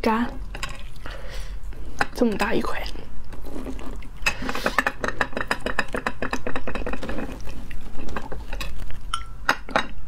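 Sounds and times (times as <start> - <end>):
wet chewing: 0.4 - 2.0, 2.9 - 9.1.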